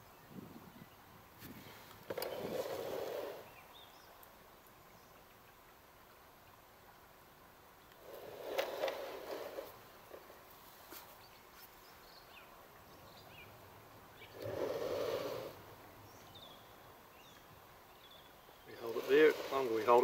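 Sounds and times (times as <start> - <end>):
rustling and scraping handling: 8.0 - 11.8, 18.7 - 20.0.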